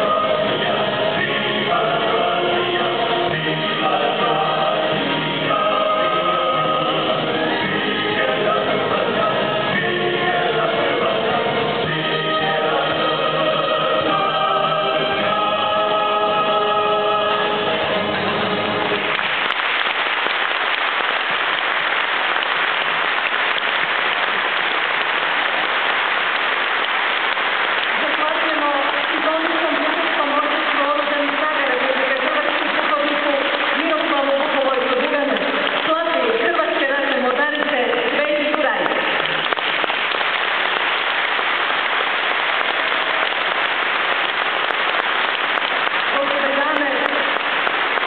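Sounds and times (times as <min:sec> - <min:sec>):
choir and wind band chord: 0:00.0 - 0:18.2
audience applause: 0:17.6 - 0:48.0.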